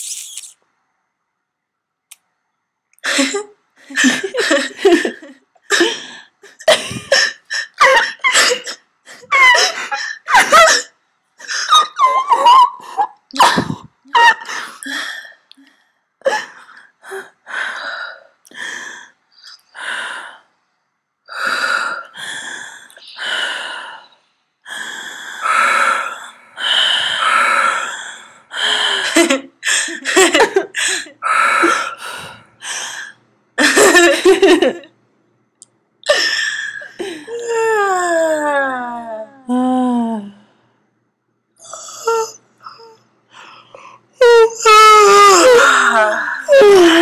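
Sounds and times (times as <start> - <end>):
person gasping and squeaking: 12.9 - 15.0.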